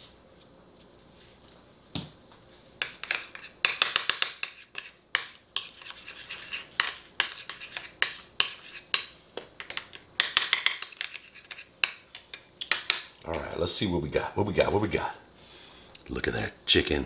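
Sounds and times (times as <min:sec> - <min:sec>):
utensil scraping a small dish: 0:02.9 - 0:03.6, 0:04.4 - 0:05.0, 0:05.6 - 0:08.9, 0:10.8 - 0:11.7.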